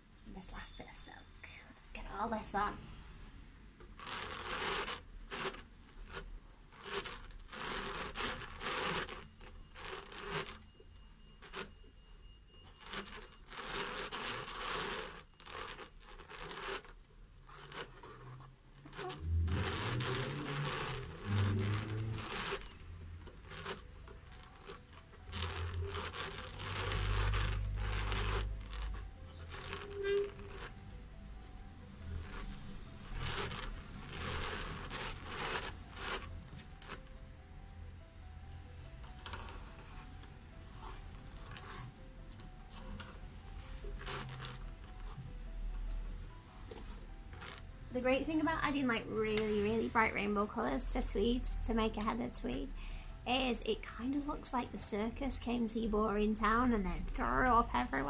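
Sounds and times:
drum carder rasping: 18.8 - 30.7.

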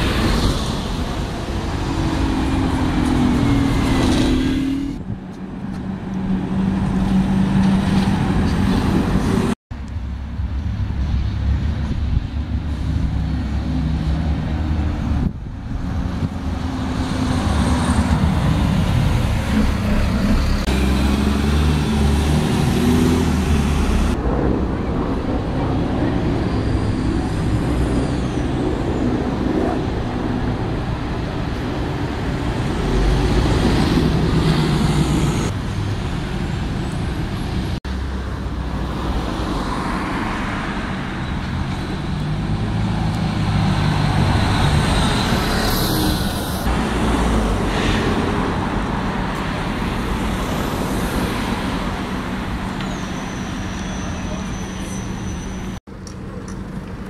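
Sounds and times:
buses and cars driving past: 0.0 - 57.0.

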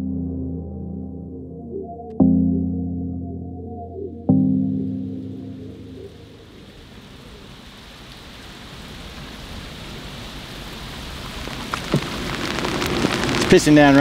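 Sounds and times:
heavy rain on water: 6.0 - 14.0.

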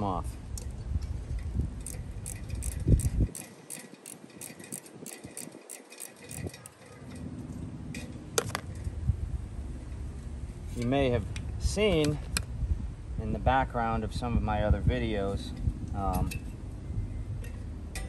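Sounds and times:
wrench clicking on bolts: 1.8 - 7.2.

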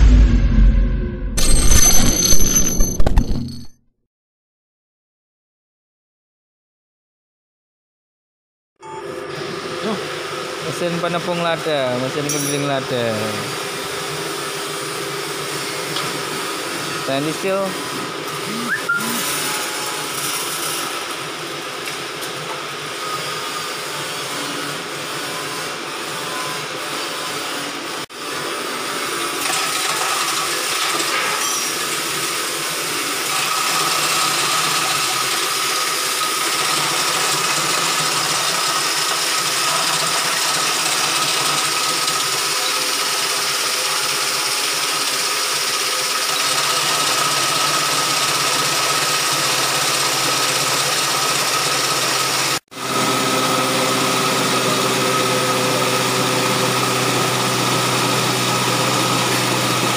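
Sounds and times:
pepper mill whirring: 11.8 - 14.3, 16.0 - 23.0, 31.8 - 59.9.

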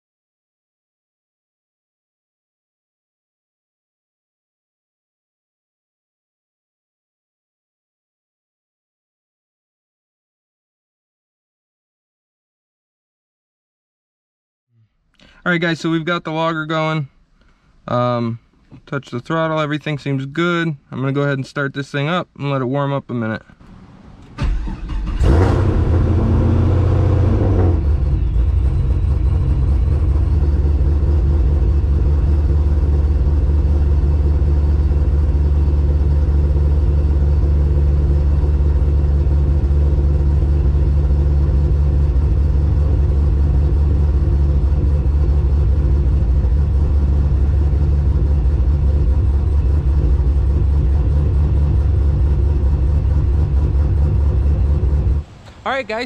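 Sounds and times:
car engine idling: 23.6 - 56.0.

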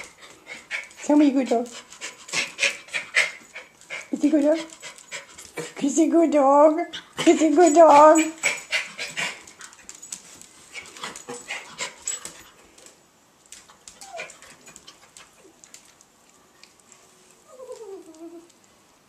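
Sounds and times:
dog whimpering: 14.0 - 14.4, 17.5 - 18.6.

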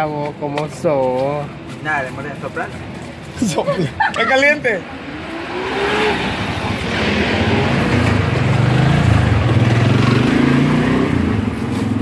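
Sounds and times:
street noise: 0.0 - 12.0
vehicle engine humming: 0.0 - 12.0.

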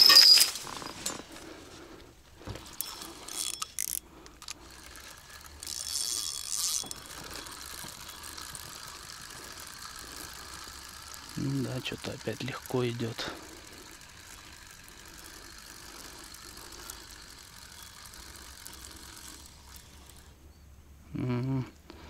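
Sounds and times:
fishing reel clicking: 2.7 - 20.4.

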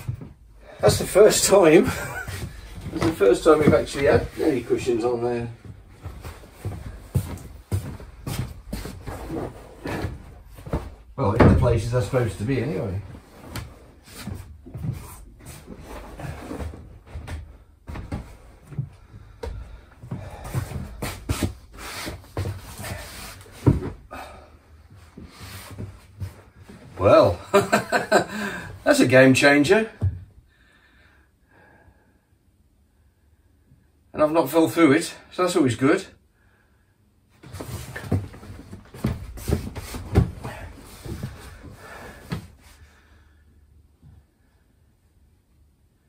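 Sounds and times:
cushion rustling: 5.6 - 11.2
footsteps on wooden floor: 5.6 - 11.6, 37.6 - 42.6.

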